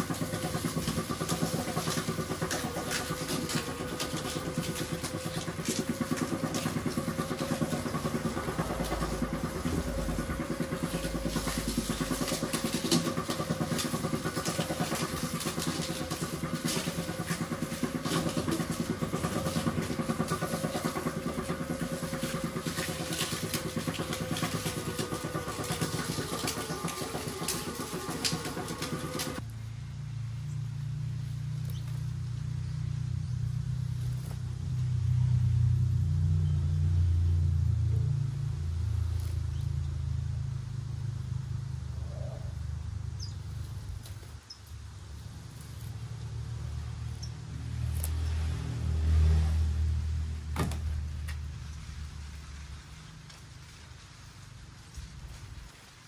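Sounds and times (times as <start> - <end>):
sugarcane mill running: 0.0 - 56.0
cane stalks cracking: 0.1 - 29.4.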